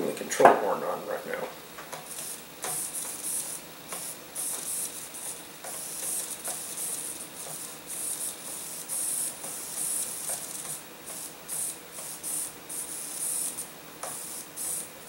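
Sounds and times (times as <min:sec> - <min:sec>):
short bursts of hiss: 0:02.0 - 0:15.0.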